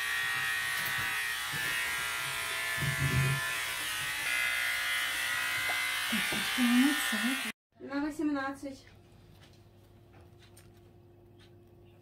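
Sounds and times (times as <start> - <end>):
small motor buzzing: 0.0 - 7.6.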